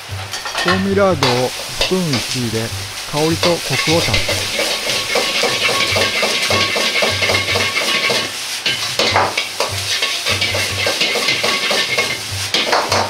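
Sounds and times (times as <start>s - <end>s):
rice sizzling in a wok: 0.0s - 13.0s
metal ladle scraping a wok: 3.8s - 13.0s.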